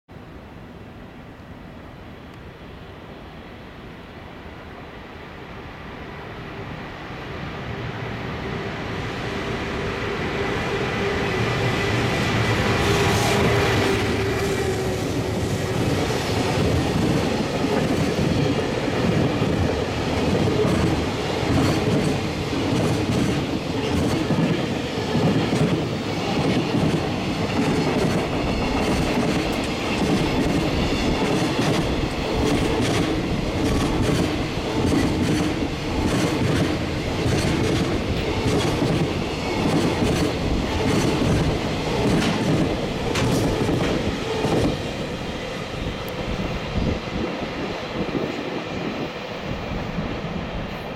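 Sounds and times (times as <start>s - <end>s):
freight train wheels clattering: 12.8s - 45.1s.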